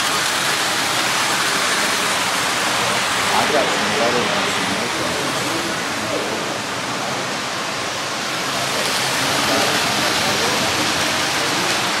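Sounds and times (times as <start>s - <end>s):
rushing din of busy hall: 0.0s - 12.0s
indistinct voices: 1.8s - 7.8s, 8.4s - 12.0s.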